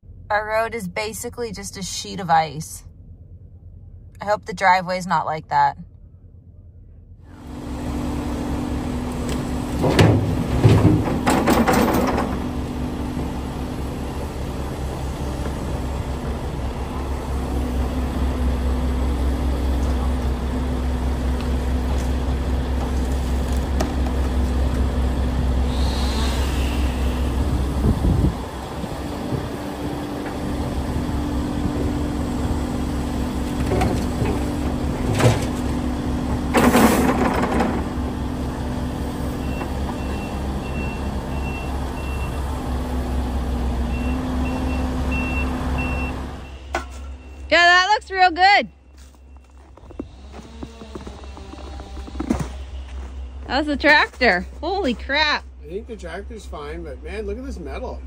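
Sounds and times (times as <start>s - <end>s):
excavator diesel engine running: 0.0s - 58.0s
dirt and rocks crashing into truck: 9.3s - 12.8s, 33.6s - 38.3s.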